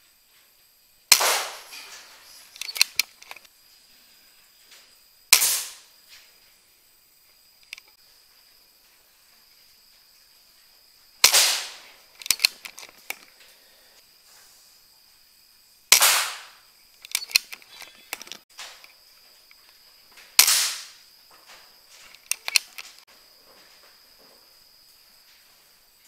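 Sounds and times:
air rifle shot cracks: 0:01.1 - 0:03.1, 0:05.3 - 0:05.9, 0:11.2 - 0:12.5, 0:15.9 - 0:16.6, 0:20.4 - 0:21.0
quick clicks: 0:01.1 - 0:03.5, 0:07.6 - 0:08.0, 0:11.2 - 0:13.3, 0:15.9 - 0:19.7, 0:22.0 - 0:23.1.

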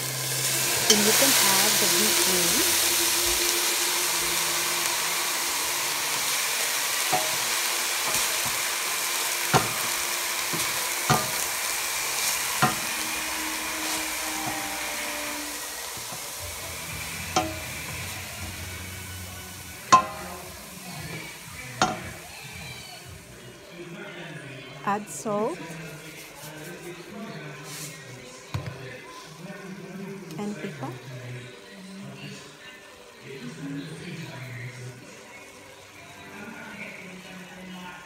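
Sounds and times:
meat sizzling in a pot: 0:00.0 - 0:38.0
wooden spoon stirring: 0:05.7 - 0:23.1, 0:25.6 - 0:28.0
spoon knocking against pot: 0:07.1 - 0:07.5, 0:17.3 - 0:18.0, 0:19.9 - 0:20.5, 0:21.8 - 0:22.2.

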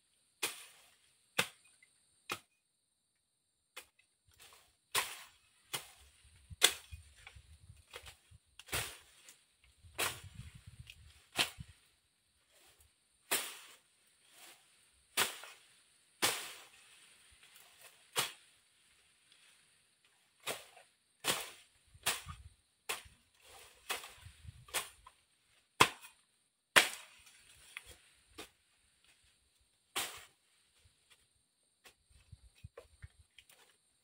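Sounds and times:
machete chopping undergrowth: 0:00.4 - 0:02.6, 0:03.7 - 0:11.8, 0:12.5 - 0:18.6, 0:20.4 - 0:29.3, 0:29.9 - 0:30.4.

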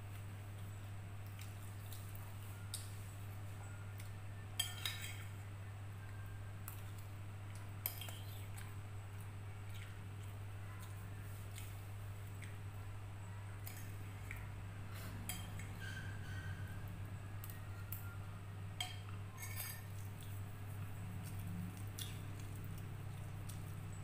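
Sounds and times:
steady low hum: 0:00.0 - 0:24.0
metal spoon scraping plate: 0:15.2 - 0:16.8, 0:19.3 - 0:19.9.

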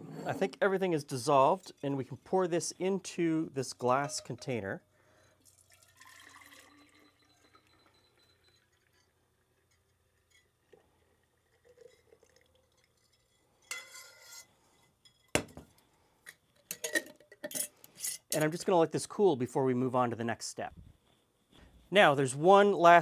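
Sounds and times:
liquid trickling into a jar: 0:05.3 - 0:09.7, 0:10.4 - 0:13.5.

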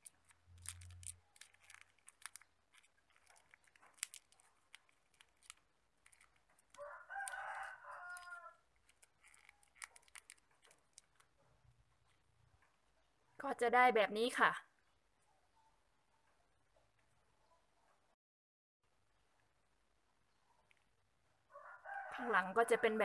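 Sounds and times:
plastic straw crinkling and clicking: 0:00.0 - 0:12.8, 0:20.6 - 0:21.0
rooster crowing: 0:06.8 - 0:08.6, 0:21.5 - 0:23.0.

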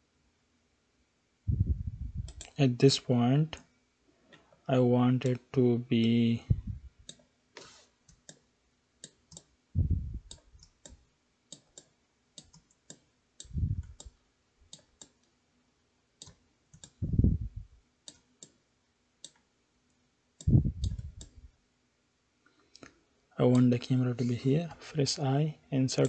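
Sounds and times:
low muffled bumps: 0:01.5 - 0:02.4, 0:09.8 - 0:10.3, 0:17.0 - 0:17.7
mouse and keyboard clicks: 0:10.2 - 0:14.1, 0:16.2 - 0:17.0.

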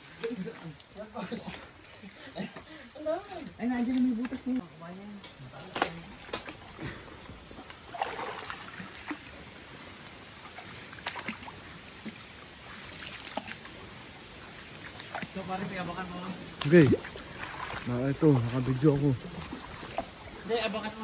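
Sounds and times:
shallow river water trickling: 0:00.0 - 0:21.0
small water splashes: 0:05.3 - 0:21.0.

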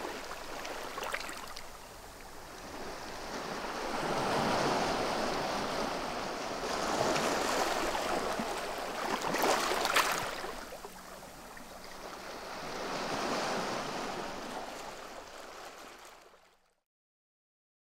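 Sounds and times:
waves washing on shingle: 0:03.8 - 0:11.0.

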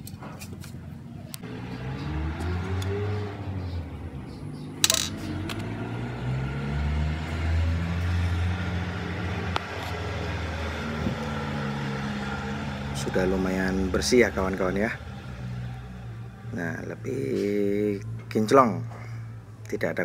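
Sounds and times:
low engine hum: 0:01.4 - 0:19.6.

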